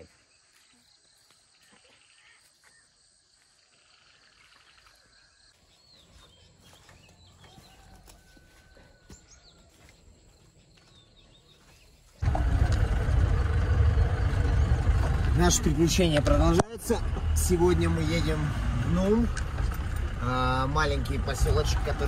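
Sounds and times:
bird chirps: 3.6s - 12.2s
vehicle engine and road rumble: 5.8s - 22.0s.

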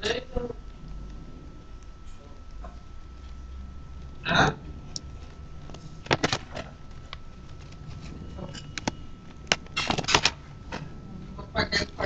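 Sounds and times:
plastic packaging crackling: 4.8s - 10.7s.

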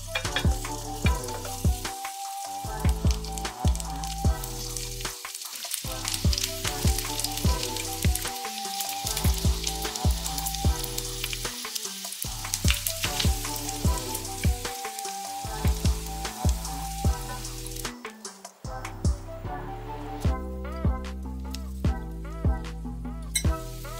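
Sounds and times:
pancakes sizzling in oil: 0.0s - 18.6s, 23.4s - 23.9s
background music with beat: 0.0s - 23.9s.

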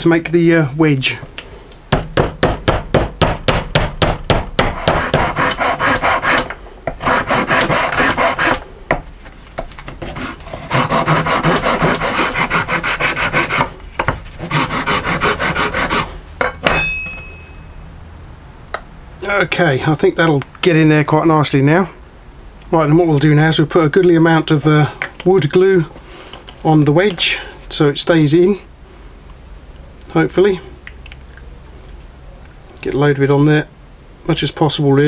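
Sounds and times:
file scraping wood: 4.6s - 8.6s, 9.9s - 16.2s
brief ringing tone: 16.8s - 17.9s.

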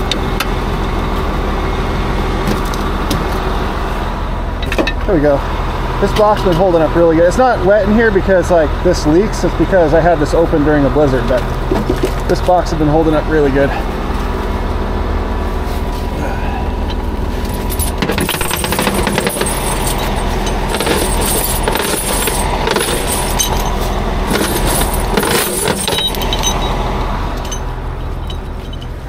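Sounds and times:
truck engine idling: 0.0s - 29.0s
metal rigging gear clanking: 16.8s - 29.0s.

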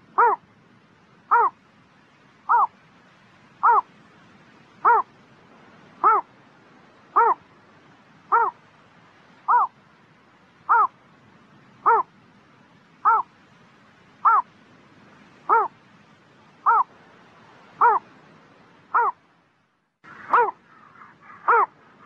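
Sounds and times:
heron calling: 0.0s - 0.4s, 1.3s - 1.6s, 2.5s - 2.8s, 3.6s - 3.9s, 4.8s - 5.1s, 6.0s - 6.3s, 7.1s - 7.5s, 8.3s - 8.6s, 9.4s - 9.8s, 10.7s - 11.0s, 11.8s - 12.1s, 13.0s - 13.3s, 14.2s - 14.5s, 15.5s - 15.8s, 16.6s - 16.9s, 17.8s - 18.1s, 18.9s - 19.2s, 20.1s - 21.9s.

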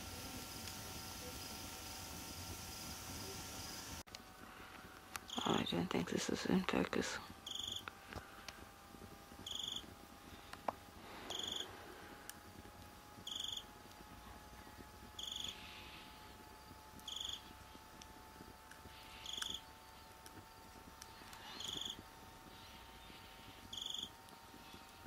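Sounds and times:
cricket buzzing trills: 5.3s - 6.4s, 7.0s - 7.9s, 9.4s - 12.0s, 13.1s - 25.0s
faint steady high tone: 9.4s - 9.9s, 11.3s - 11.7s, 13.2s - 15.6s.

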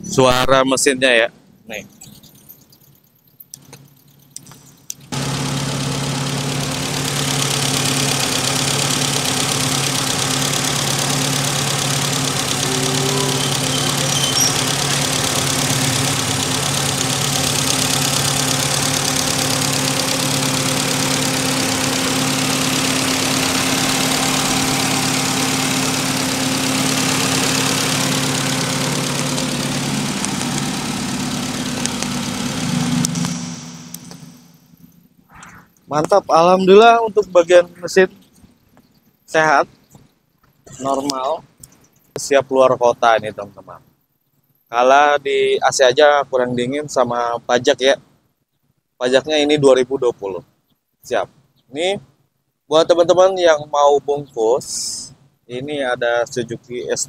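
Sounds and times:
car engine idling: 2.1s - 44.0s.

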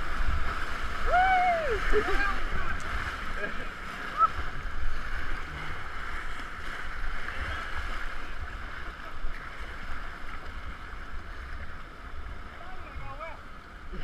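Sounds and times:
whitewater rapids rushing: 0.0s - 11.5s
water splashes: 0.0s - 14.0s.

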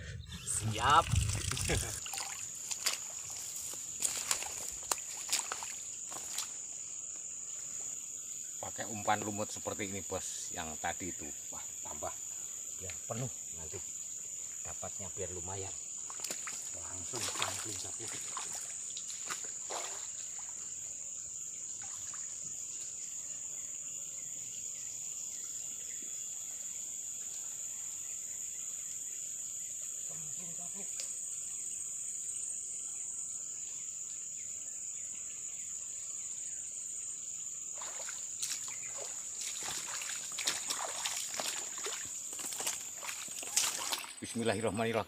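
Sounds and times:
insects droning: 0.0s - 45.0s
water splashing: 0.4s - 6.6s, 16.0s - 20.7s, 21.8s - 22.4s, 37.7s - 44.3s.

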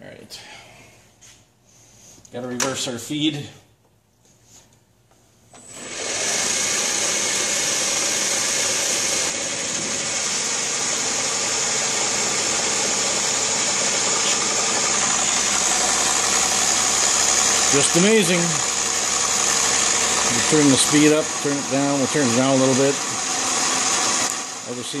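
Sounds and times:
lathe running loud: 5.6s - 25.0s
lathe tool cutting steel: 5.6s - 25.0s.

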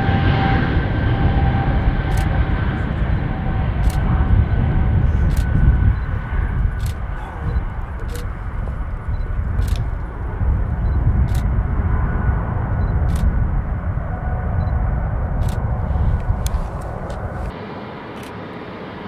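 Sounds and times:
jet engines rumbling with whine: 0.0s - 19.0s
sharp clicks: 6.8s - 7.0s, 8.0s - 8.3s, 9.6s - 10.0s, 15.4s - 15.6s.

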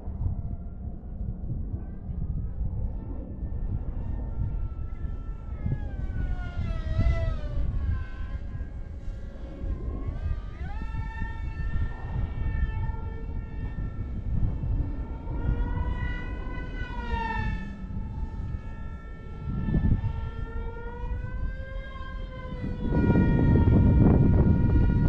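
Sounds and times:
model plane motor whining: 3.3s - 25.0s.

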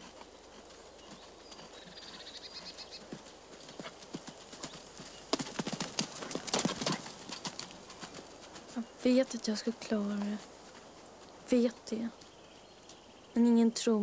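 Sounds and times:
horse hoofbeats on sand: 0.0s - 13.0s
bird twittering: 1.0s - 3.1s.

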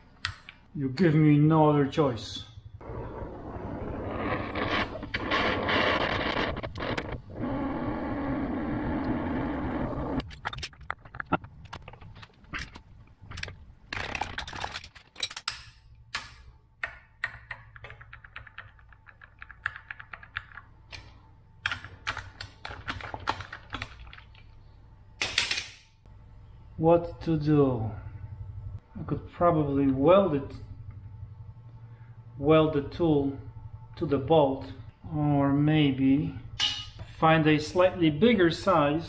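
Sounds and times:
torch flame hissing: 2.8s - 10.2s.

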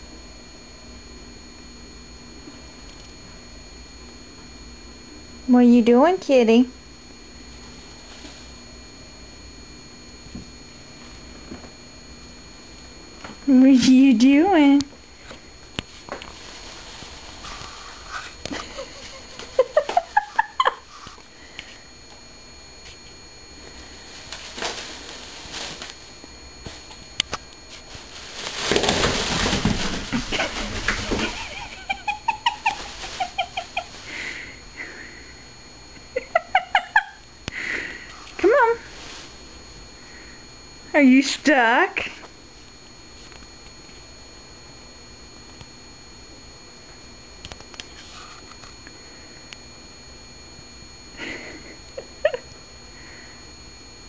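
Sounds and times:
plastic bag crinkling and rustling: 15.9s - 18.4s, 24.1s - 31.4s, 32.4s - 34.1s
plastic bag crinkling: 27.7s - 31.4s, 32.4s - 34.1s.

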